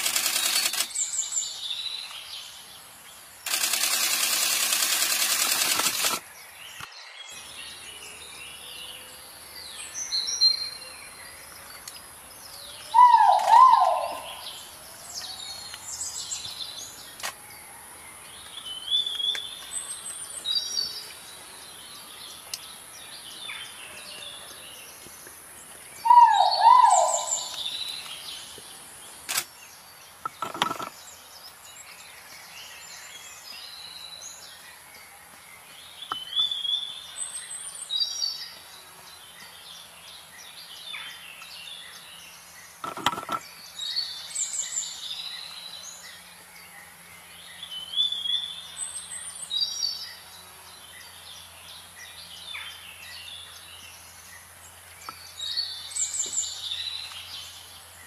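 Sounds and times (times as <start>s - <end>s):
sharp clicks: 0.0s - 1.0s, 3.4s - 6.2s, 29.2s - 29.5s, 30.2s - 30.9s, 42.8s - 43.4s
high bird chirps and whistles: 13.0s - 14.4s.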